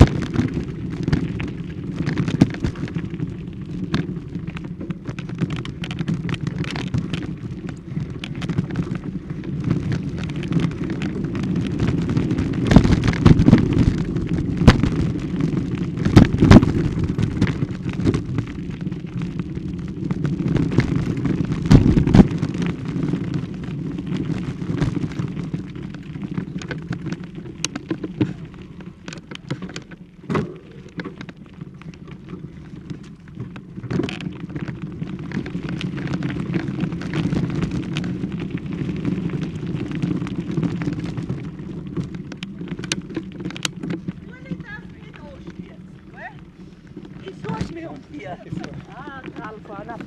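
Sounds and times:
camera handling rumble: 26.4s - 44.2s.

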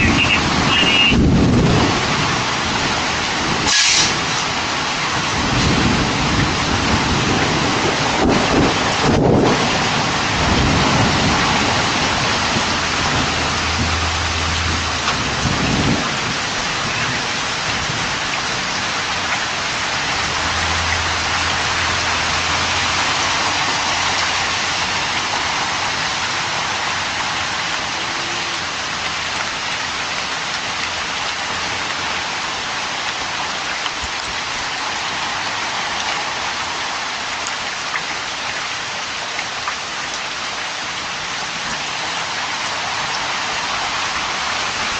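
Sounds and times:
heavy rain pouring: 0.0s - 44.9s
low rumble of thunder: 0.4s - 2.5s, 5.2s - 18.2s.

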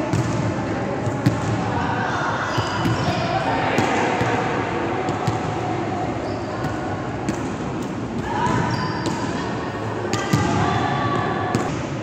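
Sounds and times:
players' voices: 0.0s - 11.8s
gymnasium hubbub: 0.0s - 12.0s.

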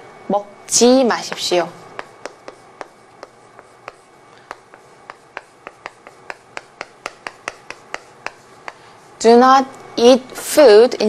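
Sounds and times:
chalk tapping on chalkboard: 1.2s - 9.2s.

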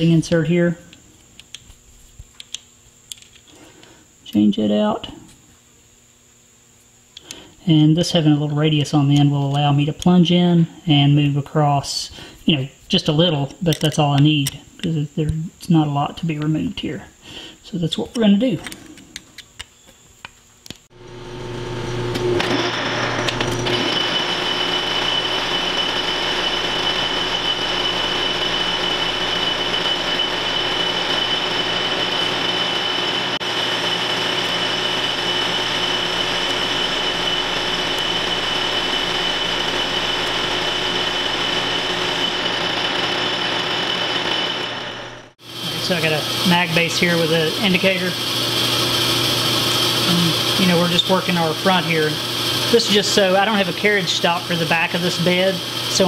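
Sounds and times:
metal lathe cutting with high whine: 21.0s - 56.0s.

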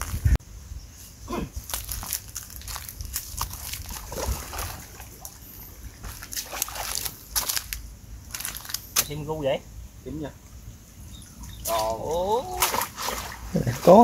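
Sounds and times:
shallow water sloshing and splashing: 1.8s - 8.8s, 11.3s - 14.0s.

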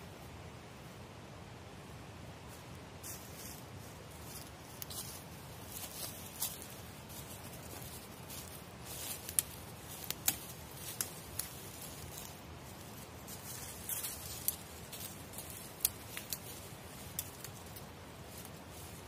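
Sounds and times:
twigs and leaves crackling underfoot: 2.5s - 19.0s
twigs snapping: 8.4s - 12.5s, 13.3s - 17.9s.

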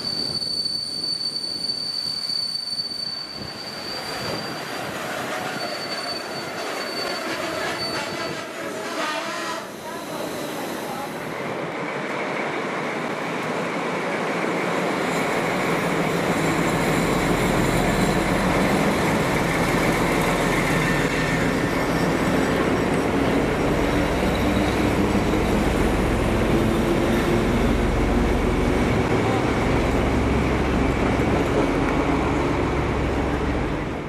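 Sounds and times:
diesel locomotive engine rumble: 0.0s - 34.0s.

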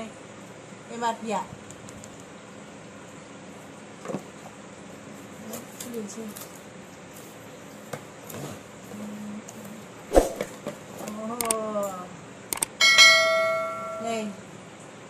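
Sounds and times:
small clicks: 11.4s - 11.6s, 12.5s - 12.8s
notification bell chime: 12.8s - 14.2s.

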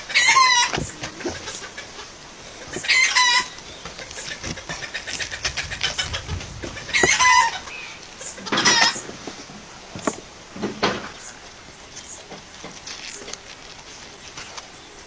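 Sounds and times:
chicken calling: 0.0s - 9.3s
cabbage leaves crackling: 0.0s - 15.0s.

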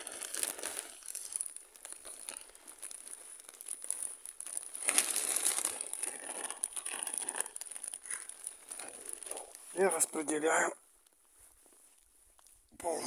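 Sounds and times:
soil pouring into a pot: 0.0s - 10.0s
plastic bag crinkling: 0.0s - 12.7s.

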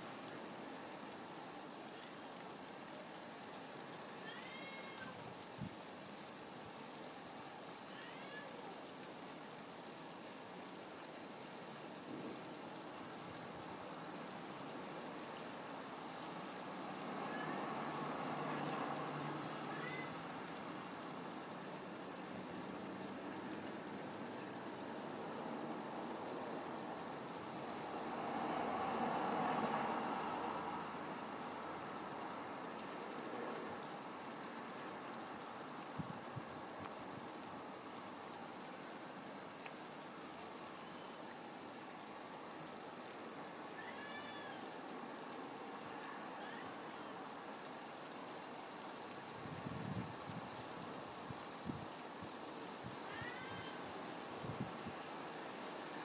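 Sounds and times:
steady rain falling: 0.0s - 56.0s
vehicle passing: 16.8s - 20.5s, 27.6s - 31.7s.

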